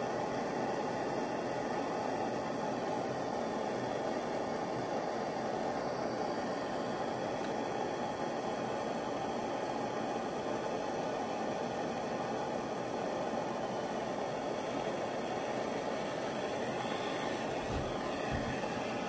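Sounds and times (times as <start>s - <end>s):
torch flame hissing: 0.0s - 19.0s.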